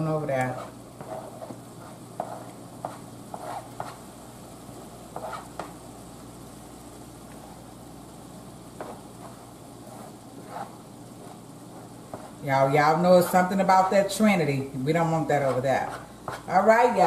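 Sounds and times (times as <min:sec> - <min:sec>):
spoon scraping cutting board: 0:00.4 - 0:04.0, 0:05.1 - 0:05.7, 0:08.8 - 0:12.4.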